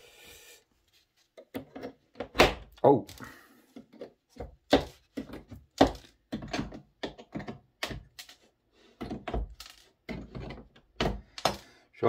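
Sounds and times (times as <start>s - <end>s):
tools and track clicking on wood: 3.8s - 11.7s.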